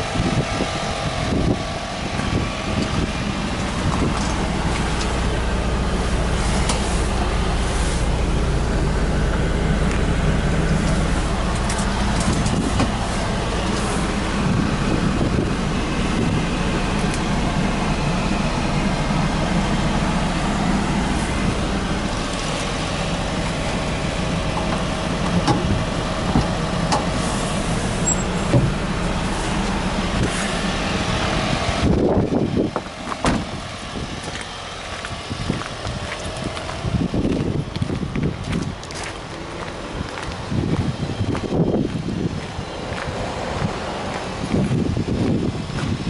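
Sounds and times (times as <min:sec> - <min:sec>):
small engine idling: 0:00.0 - 0:46.0.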